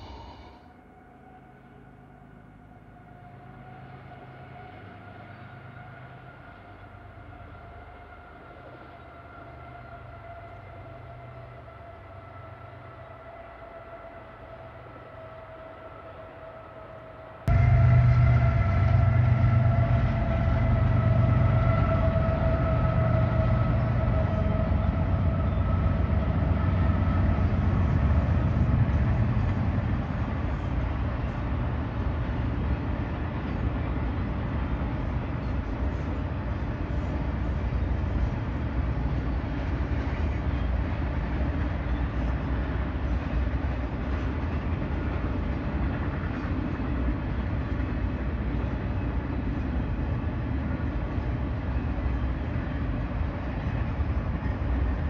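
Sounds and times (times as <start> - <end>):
locomotive pitched tone: 0.0 - 55.0
train cars rumbling and clattering: 17.4 - 55.0.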